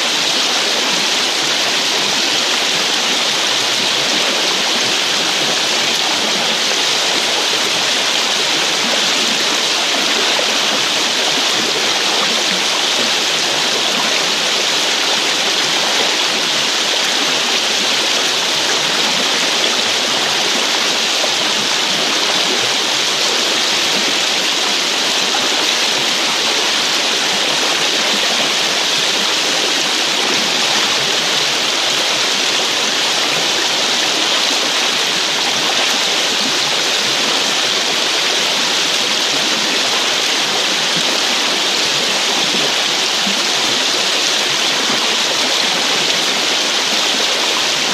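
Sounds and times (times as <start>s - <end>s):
river water rushing: 0.0s - 47.9s.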